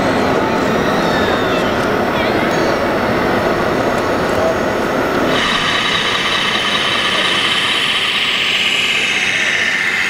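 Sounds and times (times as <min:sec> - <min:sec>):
small electric motor whining: 0:05.2 - 0:10.0.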